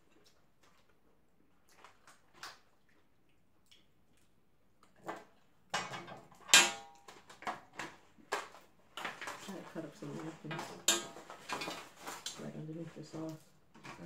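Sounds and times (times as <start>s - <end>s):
foil pans rattling: 5.8s - 14.0s.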